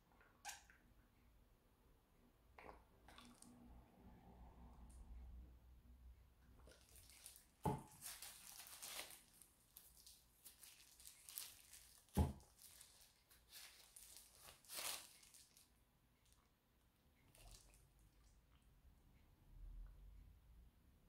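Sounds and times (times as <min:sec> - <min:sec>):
plastic sheet crinkling: 0:06.7 - 0:15.7.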